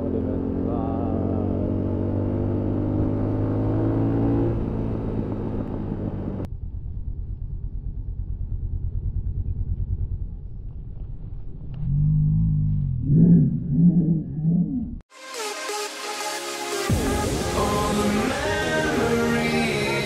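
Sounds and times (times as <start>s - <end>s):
motorcycle engine cruising: 0.0s - 15.0s
road and wind noise: 0.0s - 15.1s
low pulsing rumble: 5.4s - 15.1s.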